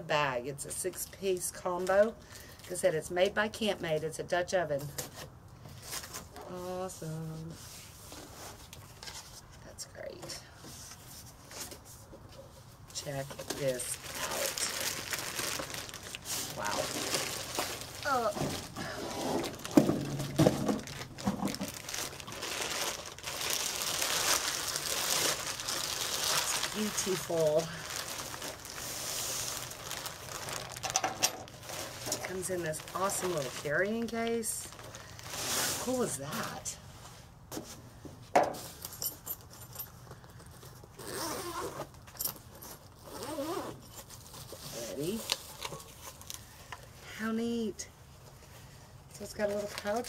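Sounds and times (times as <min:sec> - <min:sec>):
plastic bag crinkling: 0:13.4 - 0:36.6
zipper being pulled open: 0:41.0 - 0:41.9, 0:43.0 - 0:44.1.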